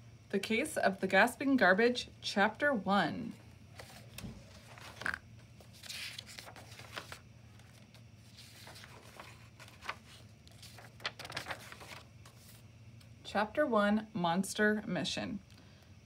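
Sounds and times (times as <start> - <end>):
book pages turning: 3.7 - 12.6.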